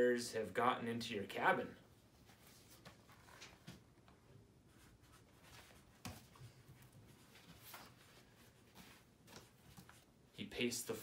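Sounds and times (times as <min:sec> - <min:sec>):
book pages turning: 0:02.2 - 0:03.8, 0:04.8 - 0:10.1.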